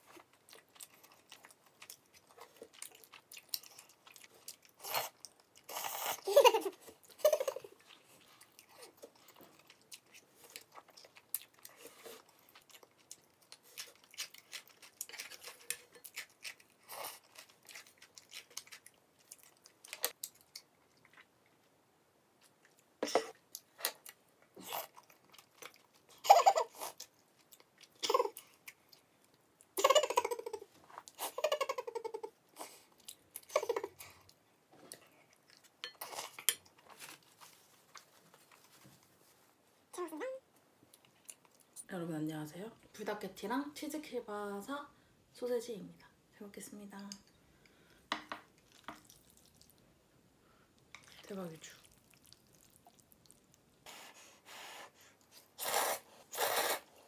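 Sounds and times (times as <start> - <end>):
chewing and crunching: 0.0 - 21.7, 22.4 - 29.8, 48.5 - 49.9, 50.8 - 54.4.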